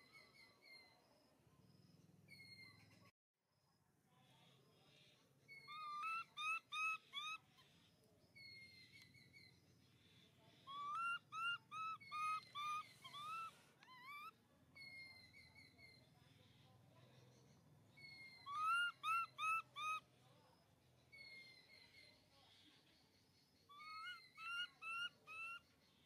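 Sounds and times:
baby monkey squeaky cries: 10.7 - 15.2, 18.0 - 20.0.

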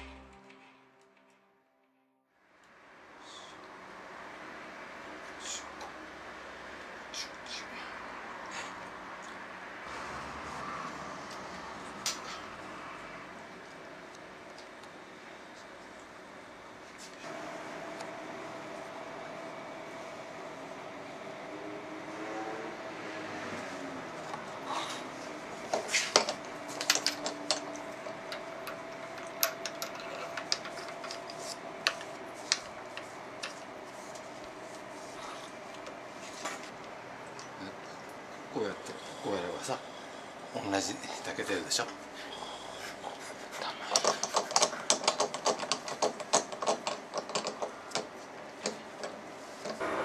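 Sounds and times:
metal parts clicking and tapping: 25.7 - 33.7, 43.9 - 49.8.

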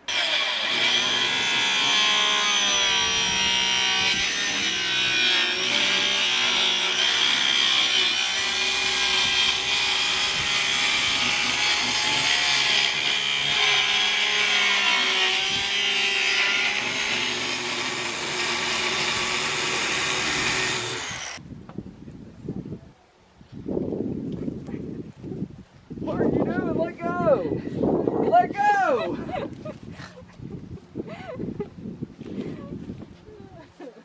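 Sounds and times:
circular saw cutting board: 0.0 - 21.4.

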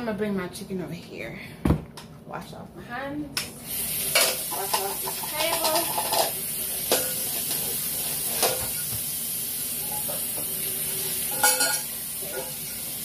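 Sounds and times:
tap water running into sink: 3.6 - 13.0.

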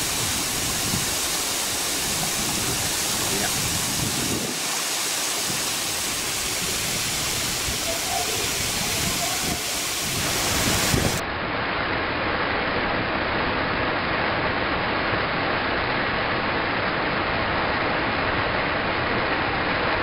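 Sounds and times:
waterfall rushing: 0.0 - 11.2.

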